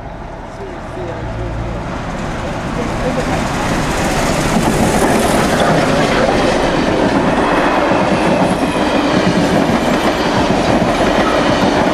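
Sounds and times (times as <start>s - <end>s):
steam train passing: 0.0s - 11.9s
train wheels rumbling on rails: 0.3s - 11.9s.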